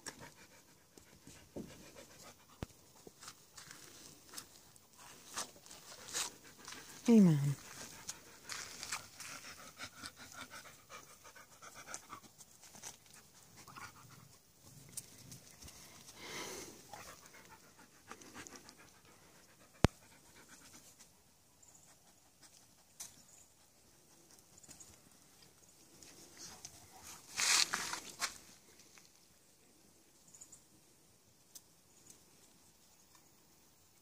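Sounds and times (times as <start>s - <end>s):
puppies scuffling on dirt: 1.1s - 10.2s, 11.6s - 18.8s, 22.6s - 29.2s
dog panting: 5.9s - 14.4s, 16.8s - 21.0s.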